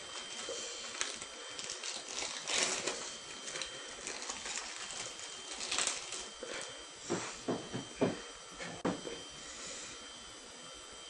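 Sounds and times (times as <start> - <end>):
plastic wrapper crinkling: 0.1 - 6.7.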